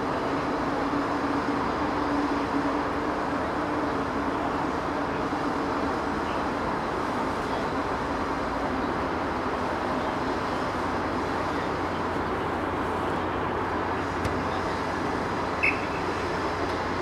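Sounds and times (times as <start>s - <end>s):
referee's whistle blast: 15.6s - 15.9s.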